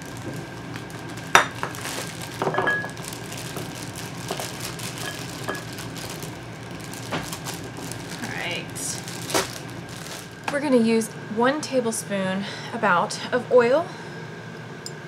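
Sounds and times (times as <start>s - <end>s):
plastic bag rustling: 0.0s - 10.7s
bowl ringing clink: 2.4s - 3.0s, 5.0s - 5.8s.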